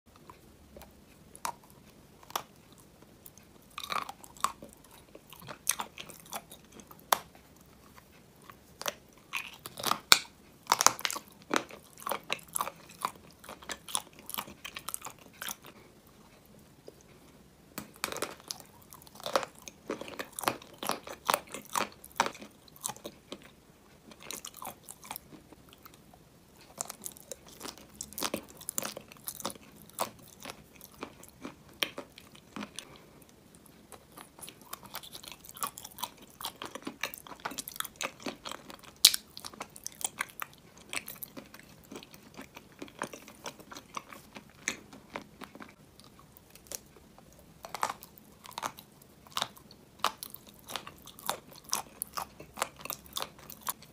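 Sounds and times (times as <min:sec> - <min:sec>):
chewing: 0:00.1 - 0:53.9
crunchy bites: 0:08.4 - 0:15.7, 0:17.8 - 0:23.5, 0:34.0 - 0:53.9.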